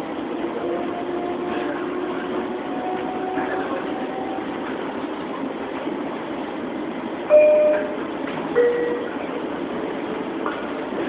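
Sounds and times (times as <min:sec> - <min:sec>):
train rail rumble: 0:00.0 - 0:11.0
two-tone chime: 0:07.3 - 0:08.0, 0:08.6 - 0:09.1.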